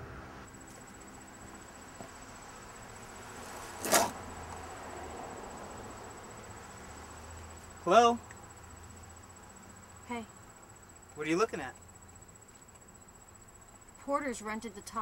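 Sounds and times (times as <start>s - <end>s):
low background hiss: 0.0s - 15.0s
high-pitched insect trill: 0.5s - 15.0s
loud rustle: 3.3s - 4.2s.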